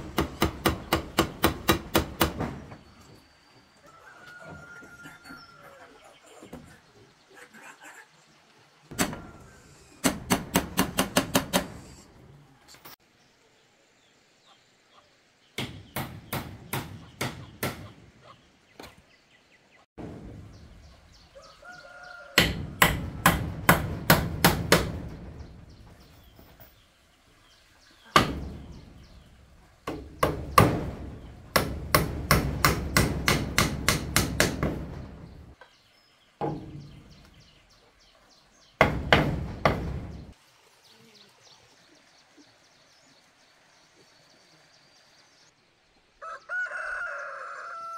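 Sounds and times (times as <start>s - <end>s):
hand tool striking wood: 0.0s - 2.8s, 10.0s - 11.8s, 22.4s - 25.5s, 28.2s - 29.0s, 29.9s - 35.4s, 38.8s - 40.3s.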